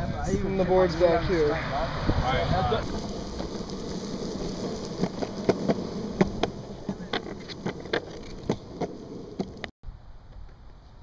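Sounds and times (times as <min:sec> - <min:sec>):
longboard wheels rolling on concrete: 0:00.0 - 0:11.0
wheels clacking on seams: 0:02.8 - 0:09.7.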